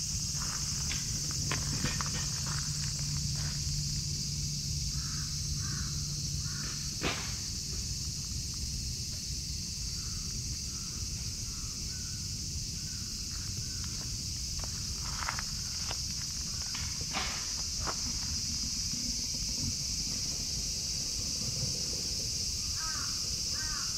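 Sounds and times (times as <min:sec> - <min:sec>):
steady high hiss: 0:00.0 - 0:23.9
crow cawing: 0:04.9 - 0:06.8, 0:22.6 - 0:23.9
sharp knock: 0:07.0 - 0:07.4.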